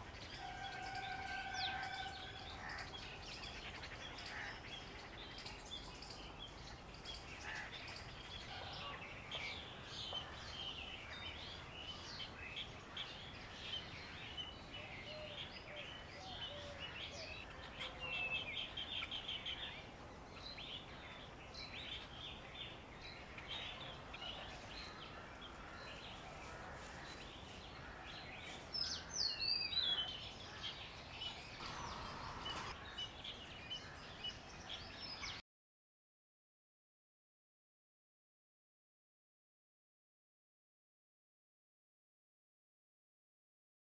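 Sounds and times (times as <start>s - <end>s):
small birds chirping: 0.0s - 35.4s
loud sweeping bird call: 31.4s - 32.8s.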